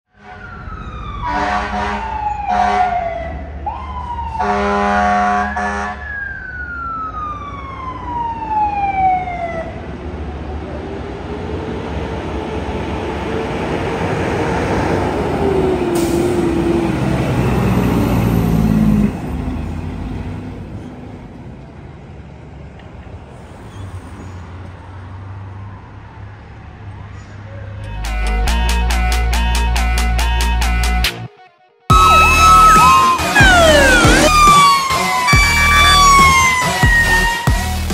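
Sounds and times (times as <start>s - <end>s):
traffic: 0.1s - 31.2s, 31.9s - 37.9s
air horn blasts: 1.2s - 3.0s, 4.4s - 6.0s
truck engine rumble: 9.6s - 26.0s, 31.9s - 37.9s.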